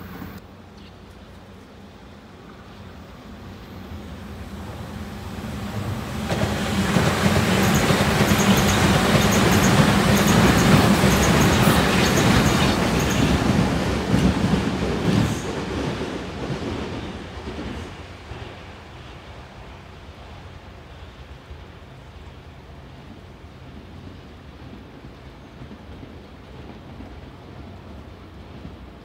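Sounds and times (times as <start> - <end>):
train passing with low hum: 0.0 - 29.0
wheels clicking over rail joints: 6.3 - 15.9.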